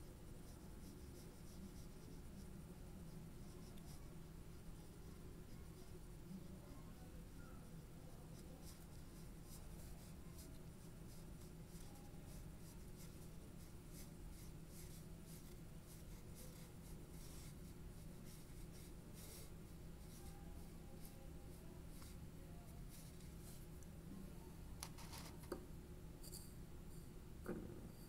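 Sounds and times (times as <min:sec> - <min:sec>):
pencil scratching on paper: 0:00.4 - 0:02.5, 0:03.1 - 0:21.2.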